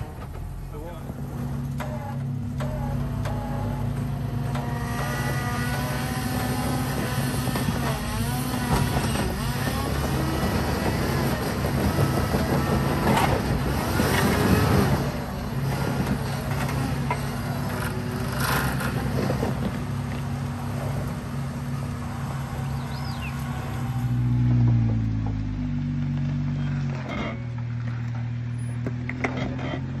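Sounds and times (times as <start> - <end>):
car engines droning: 0.0 - 30.0.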